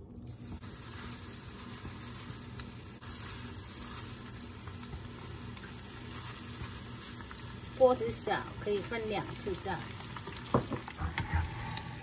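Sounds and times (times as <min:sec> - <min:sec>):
hot oil bubbling and sizzling: 0:00.0 - 0:12.0.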